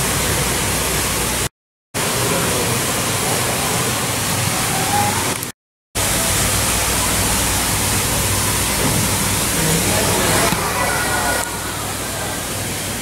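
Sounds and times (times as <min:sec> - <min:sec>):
steady hiss: 0:06.0 - 0:13.0.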